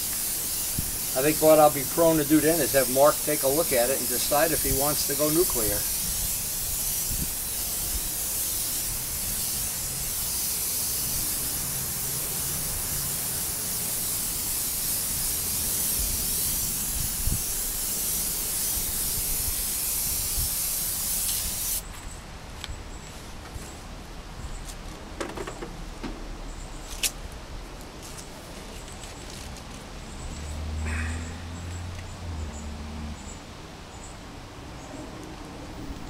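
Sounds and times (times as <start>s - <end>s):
airbrush spraying hiss: 0.0s - 21.8s.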